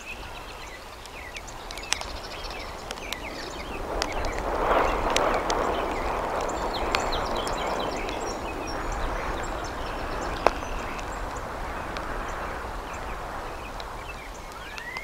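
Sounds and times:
rain hissing: 0.0 - 15.0
faint bird chirps: 5.7 - 15.0.

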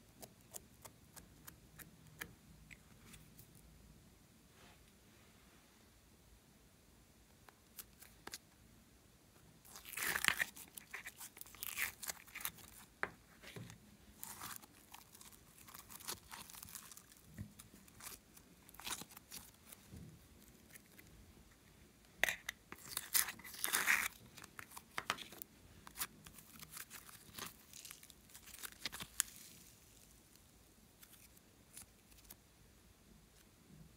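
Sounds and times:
slime crackling and popping: 9.7 - 12.8, 14.2 - 19.8.

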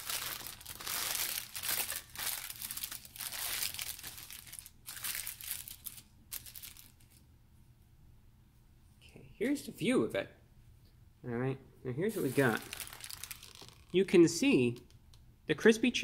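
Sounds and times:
paper wrapper crinkling: 0.0 - 7.2, 12.1 - 14.0.

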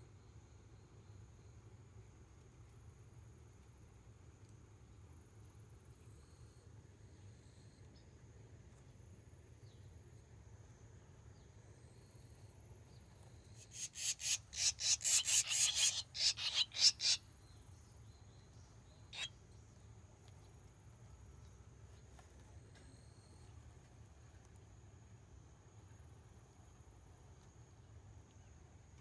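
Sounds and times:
swallows chirping: 13.6 - 17.2, 18.9 - 19.4.

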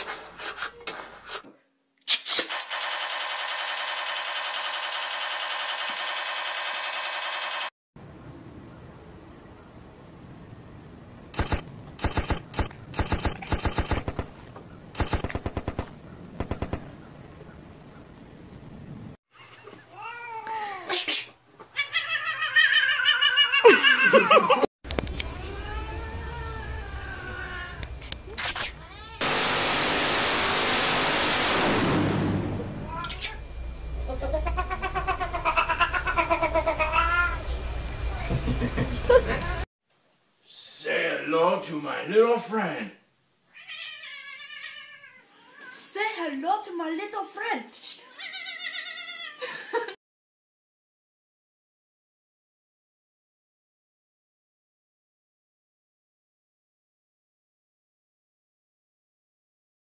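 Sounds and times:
machine-gun fire: 2.4 - 7.7, 11.4 - 14.4, 15.0 - 17.0, 29.2 - 32.8
cat meowing: 32.8 - 33.4, 34.4 - 37.4, 43.5 - 45.9, 48.0 - 49.4.

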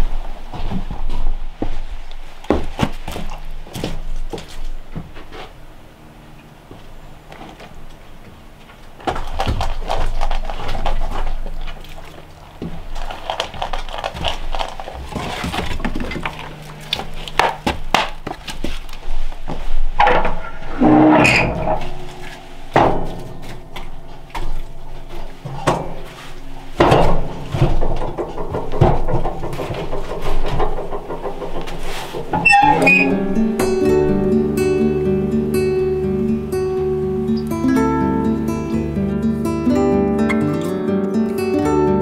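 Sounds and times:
footsteps on wooden boards: 0.0 - 5.6, 10.8 - 21.1, 21.9 - 33.9
dog crunching dry food: 9.1 - 19.0
loud clatter: 26.7 - 33.1.

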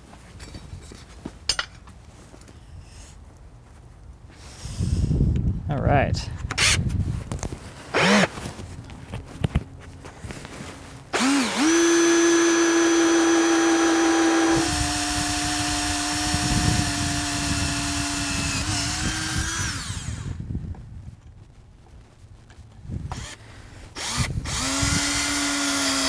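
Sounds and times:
cordless drill whining: 7.9 - 8.3, 11.1 - 20.4, 23.1 - 23.4, 24.0 - 26.0.

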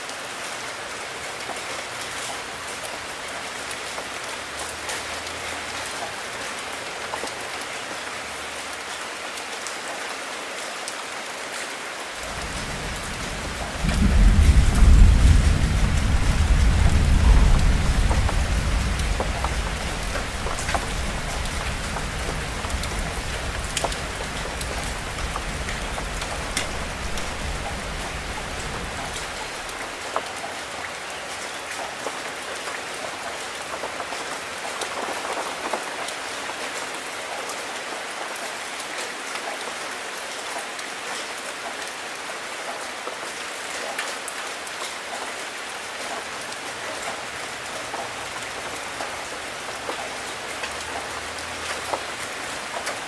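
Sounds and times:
steady rain falling: 0.0 - 53.0
raindrops ticking: 12.2 - 31.1, 46.4 - 53.0.

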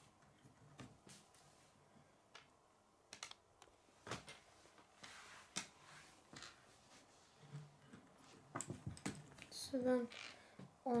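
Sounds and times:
plastic pieces clicking: 3.1 - 3.7.

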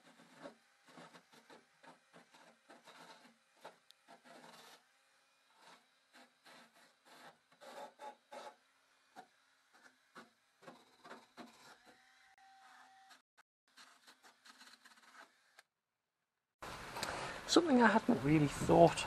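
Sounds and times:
drill wire wheel scrubbing metal: 0.0 - 13.2.

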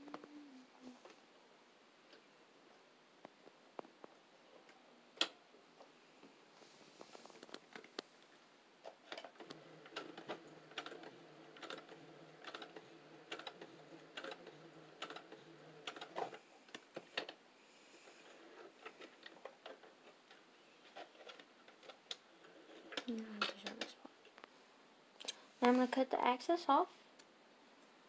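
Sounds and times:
sewing machine stitching: 9.1 - 17.4.

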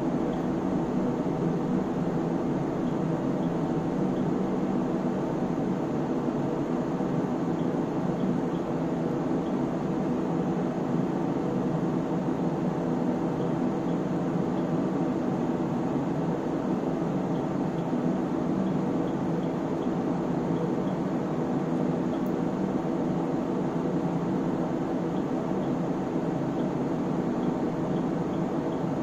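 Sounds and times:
cooling fans whirring hum: 0.0 - 29.0.

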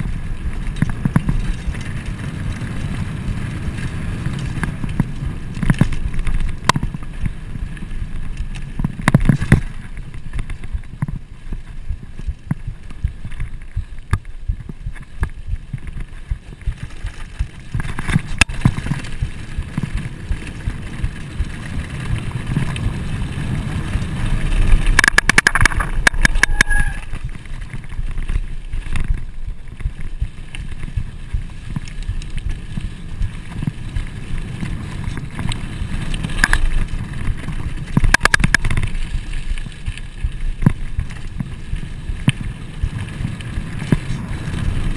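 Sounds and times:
bike clicking and rattling: 0.0 - 44.9
tyres rumbling on dirt: 0.0 - 44.9
wind rushing over microphone: 0.0 - 44.9
brief high ring: 26.4 - 27.1.

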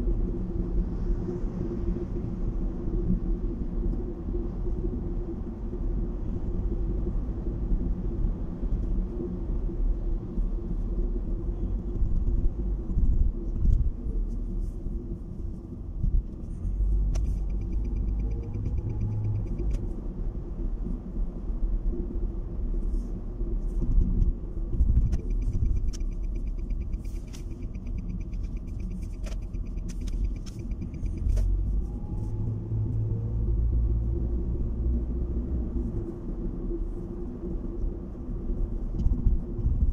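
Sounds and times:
car road and engine noise: 0.0 - 39.9.

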